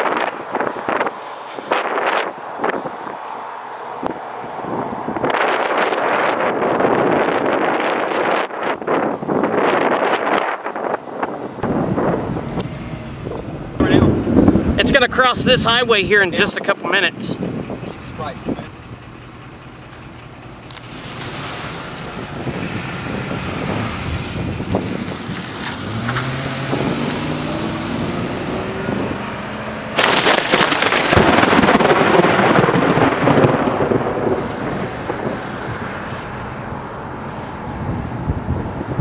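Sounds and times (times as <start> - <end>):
vehicle engine speeding up: 11.6 - 15.0, 17.4 - 39.0
thunder crack and rumble: 11.6 - 15.9, 29.9 - 36.9.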